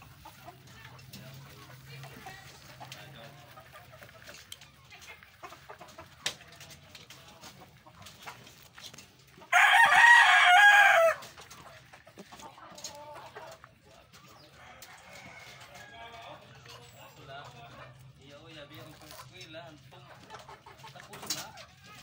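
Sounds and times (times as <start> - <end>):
rooster crowing: 9.5 - 11.2.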